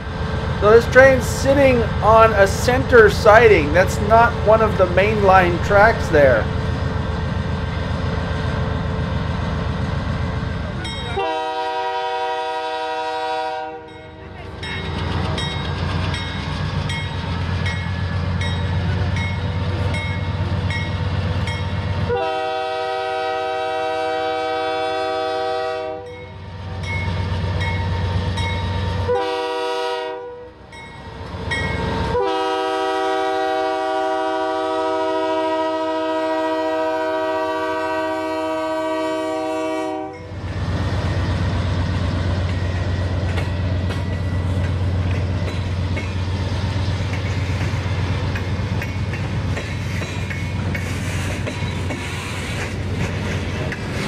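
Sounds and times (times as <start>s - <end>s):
train rumble: 0.0s - 54.0s
locomotive air horn blasts: 11.1s - 13.9s, 22.1s - 26.1s, 29.0s - 30.5s, 32.1s - 40.3s.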